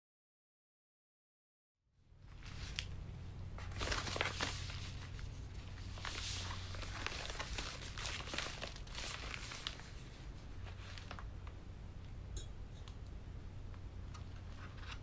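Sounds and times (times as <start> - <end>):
steady low hum: 1.9 - 15.0
padded mailer crinkling: 2.3 - 11.6.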